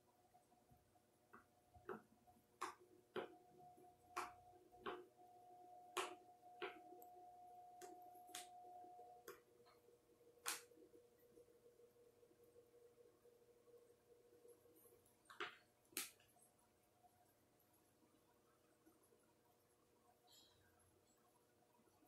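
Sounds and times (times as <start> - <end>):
faint steady hum: 0.0 - 22.0
paintbrush clicks and taps: 4.1 - 5.0.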